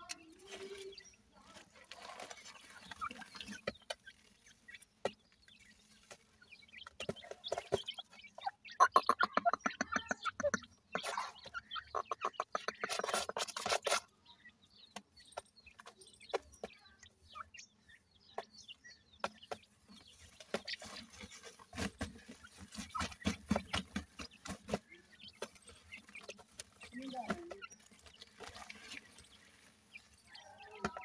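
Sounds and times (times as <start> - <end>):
chicks peeping: 0.0 - 31.0
hens clucking: 0.0 - 31.0.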